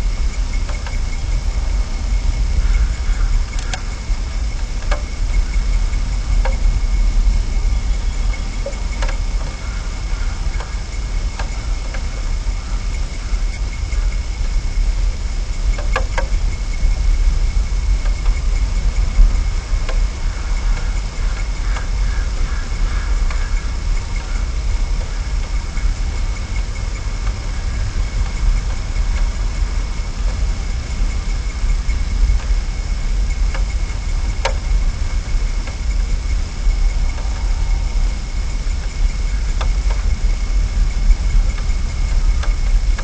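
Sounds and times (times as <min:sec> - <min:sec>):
faint high-pitched whine: 0:00.0 - 0:43.0
steady low rumble: 0:00.0 - 0:43.0
faint clicks: 0:02.6 - 0:05.7, 0:07.7 - 0:14.6, 0:18.0 - 0:29.4, 0:31.0 - 0:43.0.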